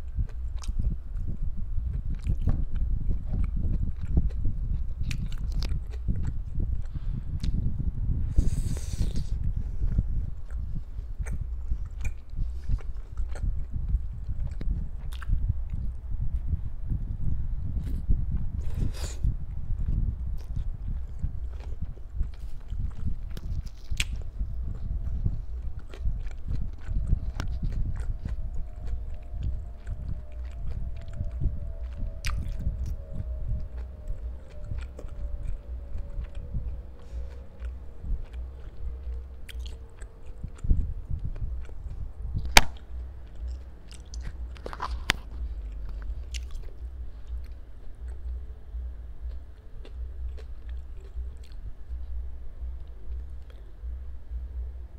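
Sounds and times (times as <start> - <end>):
wet chewing: 0.0 - 7.7, 8.4 - 16.0, 17.8 - 52.1.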